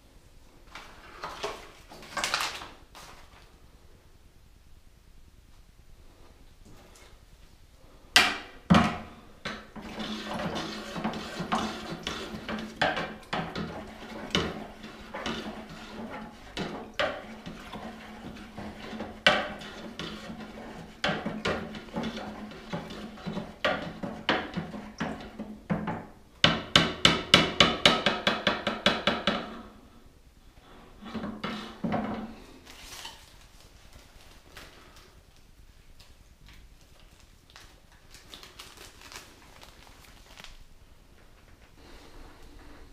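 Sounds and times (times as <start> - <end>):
stick scraping inside a jar: 9.8 - 25.3, 31.0 - 31.9.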